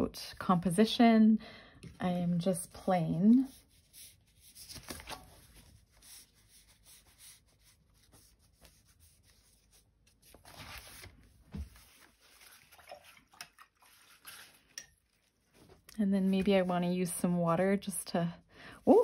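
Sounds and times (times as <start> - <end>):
paper rustling: 3.6 - 13.0.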